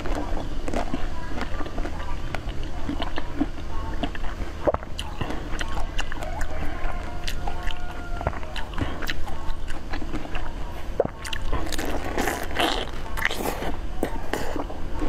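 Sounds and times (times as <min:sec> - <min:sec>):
crunchy chewing: 0:00.0 - 0:15.0.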